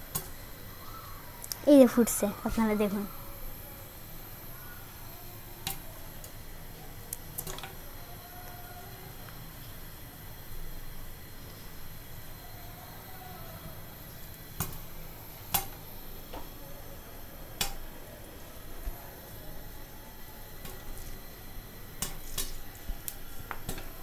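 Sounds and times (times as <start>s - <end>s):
popcorn popping: 0.0s - 1.7s, 4.4s - 12.6s, 13.2s - 24.0s
oil sizzling: 0.0s - 24.0s.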